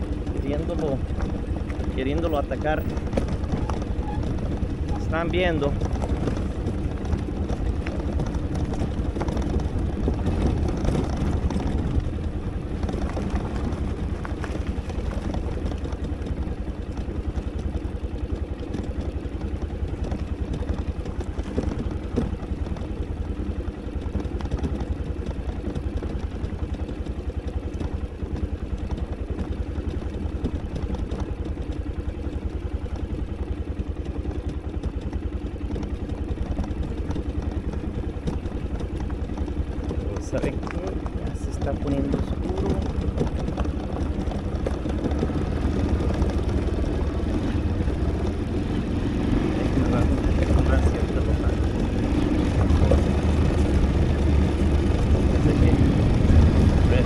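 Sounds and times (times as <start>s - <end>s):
motorcycle engine running: 0.0s - 57.0s
low rumble: 39.6s - 57.0s.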